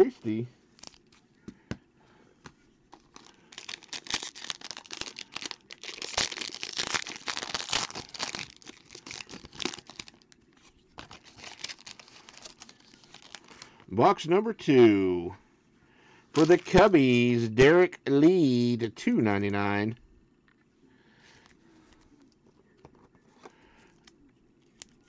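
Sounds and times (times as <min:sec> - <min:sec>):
foil pack crinkling and tearing: 0:00.8 - 0:01.2, 0:02.9 - 0:10.3, 0:11.0 - 0:13.8, 0:16.4 - 0:16.8.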